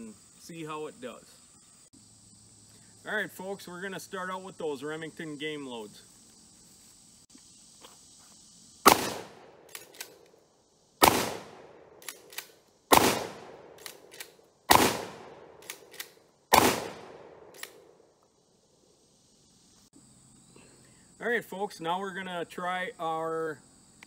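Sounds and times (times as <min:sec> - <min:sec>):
shotgun shots: 0:08.8 - 0:10.1, 0:11.0 - 0:17.8.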